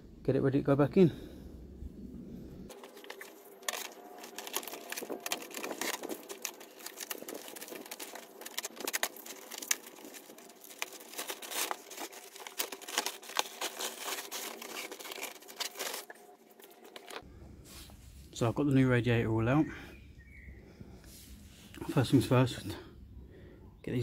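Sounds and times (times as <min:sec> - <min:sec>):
plastic wrapping crinkling: 0:02.7 - 0:17.2
cardboard and foam rustling: 0:02.7 - 0:18.0.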